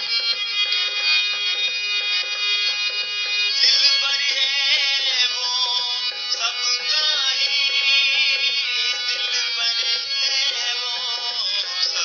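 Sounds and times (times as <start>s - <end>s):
song with wavering high melody: 0.0s - 12.0s.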